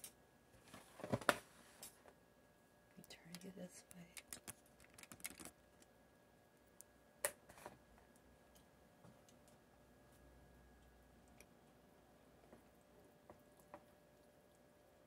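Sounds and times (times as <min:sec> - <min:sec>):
faint handling clicks and taps: 0:03.0 - 0:05.9.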